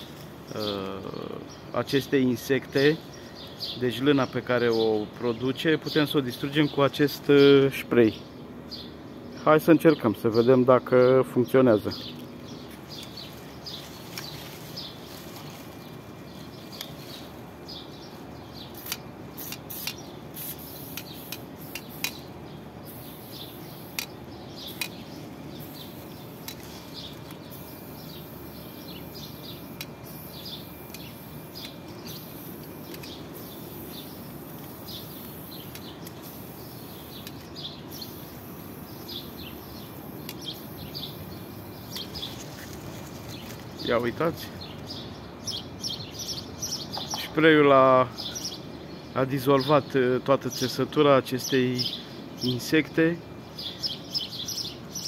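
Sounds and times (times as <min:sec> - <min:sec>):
birds chirping: 0:00.0 - 0:55.0
aerosol can spraying: 0:18.7 - 0:25.0, 0:29.1 - 0:39.0.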